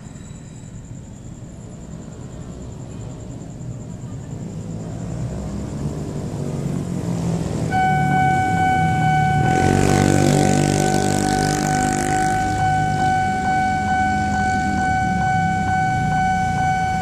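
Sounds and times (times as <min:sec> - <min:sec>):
rumble of approaching vehicle: 0:00.0 - 0:17.0
rush of passing noise: 0:00.0 - 0:17.0
loud steady horn: 0:07.6 - 0:17.0.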